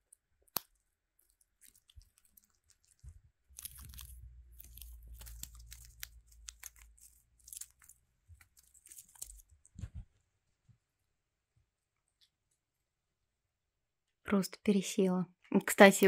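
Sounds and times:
squirrel gnawing pine cone: 0.0 - 9.9.

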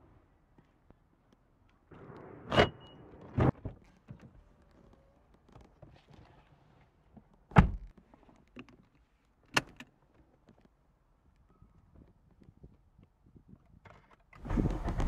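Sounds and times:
car door shutting: 14.4 - 15.0.

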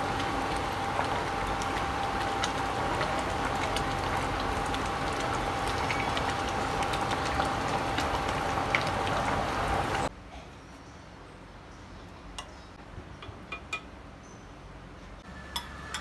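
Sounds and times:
soup simmering and bubbling: 0.0 - 10.1.

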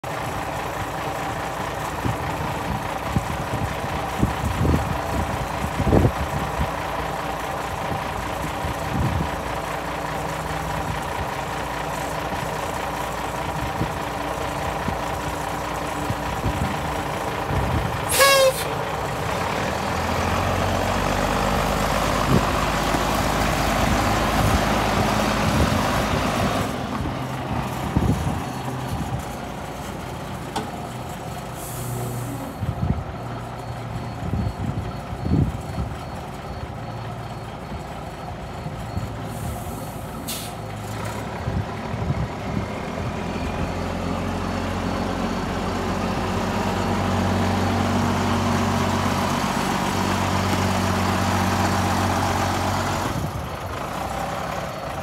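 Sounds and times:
truck engine running: 0.0 - 55.0
horn toot: 18.1 - 18.8.

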